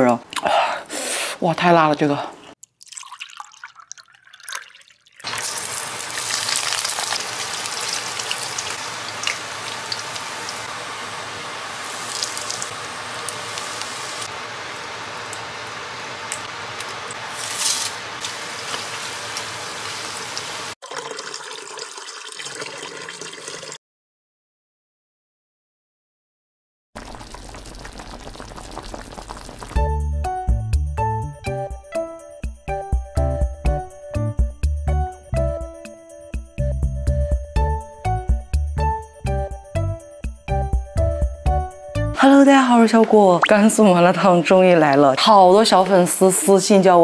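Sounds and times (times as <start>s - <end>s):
quiet cooking noise: 1.8s - 20.8s, 27.0s - 29.8s
oil sizzling in a wok: 5.2s - 20.8s, 27.0s - 30.0s.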